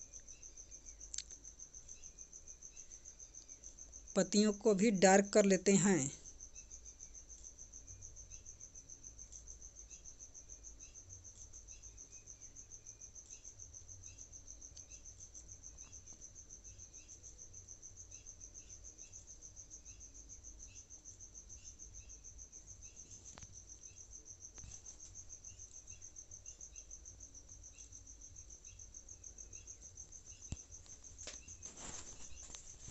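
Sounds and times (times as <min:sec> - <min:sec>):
cricket trill: 0:00.0 - 0:32.9.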